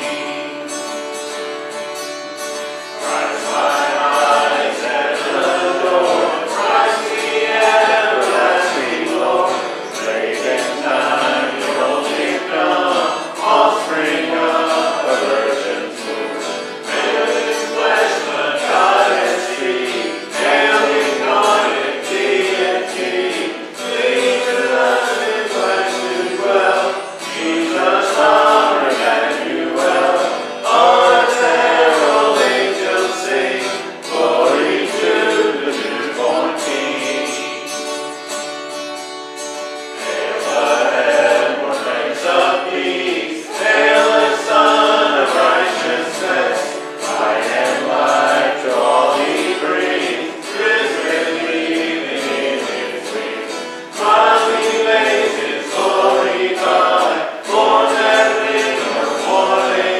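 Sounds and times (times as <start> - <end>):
man and woman singing: 0.0 - 0.8, 3.0 - 38.1, 39.9 - 59.9
acoustic guitar: 0.0 - 59.9.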